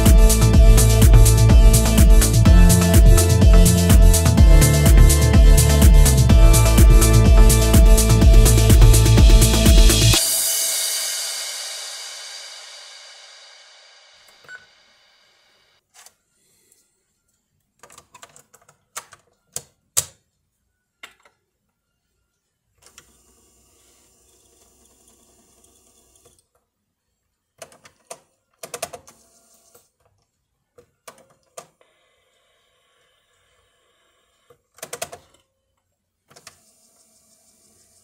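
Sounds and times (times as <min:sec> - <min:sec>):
music: 0:00.0 - 0:13.8.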